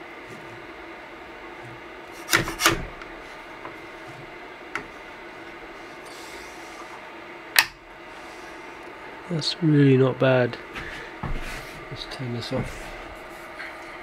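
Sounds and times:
printer humming: 0:00.0 - 0:14.0.

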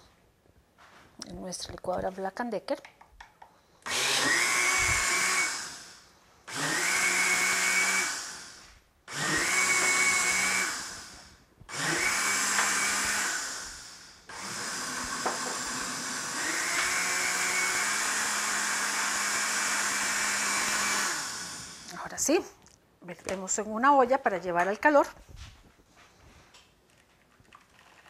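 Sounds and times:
blender pulsing and running: 0:03.8 - 0:22.3.

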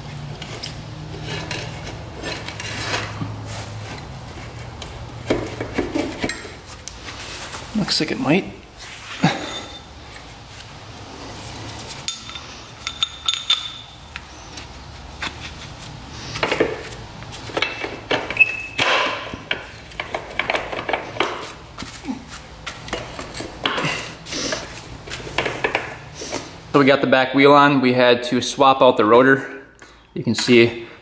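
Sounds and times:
hand tools clinking on metal: 0:09.2 - 0:09.9, 0:12.0 - 0:14.0.

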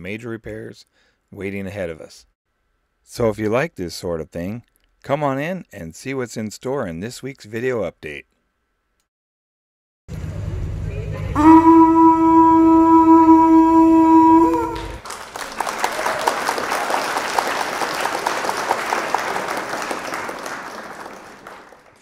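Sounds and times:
horn blast: 0:11.3 - 0:15.0
applause: 0:14.5 - 0:22.0.

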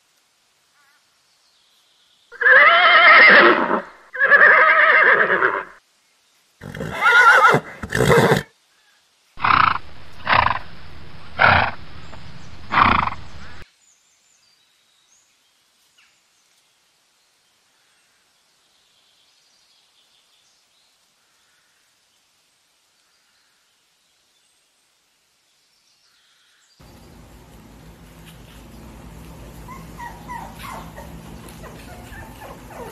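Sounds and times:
horses whinnying: 0:02.4 - 0:05.8, 0:06.6 - 0:08.5, 0:12.7 - 0:13.2.

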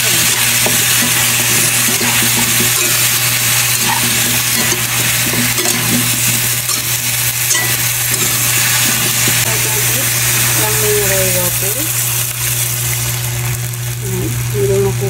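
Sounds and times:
metal spatula scraping pan: 0:00.0 - 0:09.4
steady low hum: 0:00.0 - 0:15.0
vegetables sizzling in oil: 0:00.0 - 0:15.0.

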